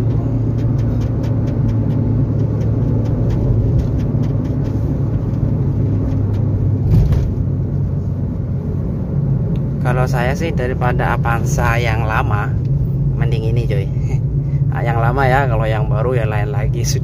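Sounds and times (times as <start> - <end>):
car engine and road rumble: 0.0 - 17.0
car bump: 6.0 - 7.6.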